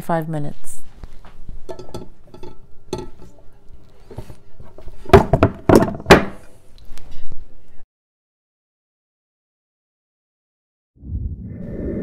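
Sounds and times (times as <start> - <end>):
metal pan knocking on ceramic plate: 1.7 - 3.3.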